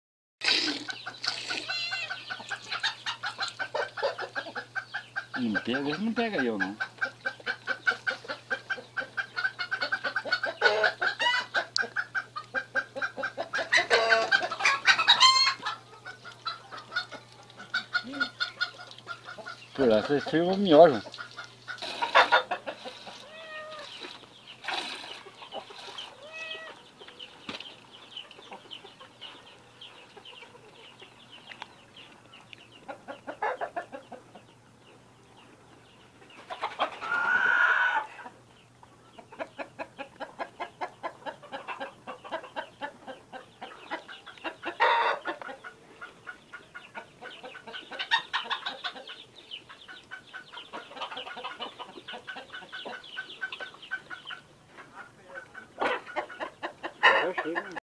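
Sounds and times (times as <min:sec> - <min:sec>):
milk squirting into metal pail: 0:00.4 - 0:01.8
drawn-out animal call: 0:00.7 - 0:20.4, 0:21.3 - 0:27.1.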